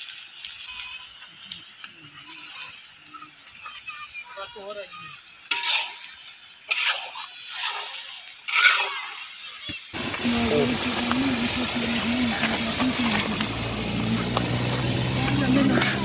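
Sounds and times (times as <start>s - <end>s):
meat sizzling in a wok: 0.0s - 16.0s
metal spatula scraping a pan: 5.4s - 9.8s.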